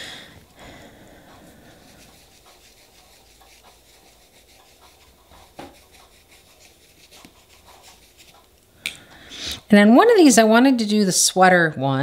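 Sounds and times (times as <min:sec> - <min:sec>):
tools rubbing on work surface: 0:01.3 - 0:08.6.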